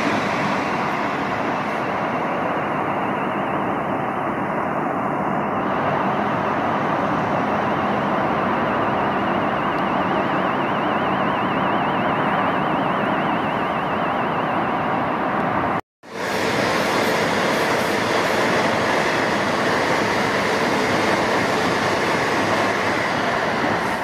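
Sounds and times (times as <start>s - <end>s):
road traffic roar: 0.0s - 24.0s
faint high warbling tone: 1.7s - 15.8s.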